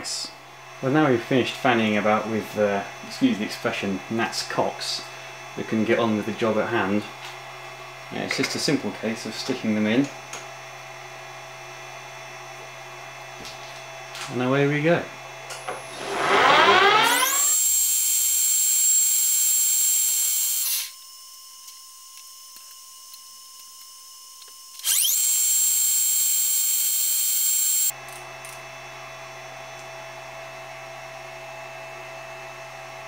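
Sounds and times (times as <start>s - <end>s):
metal lathe whining: 15.7s - 20.9s, 24.8s - 27.9s.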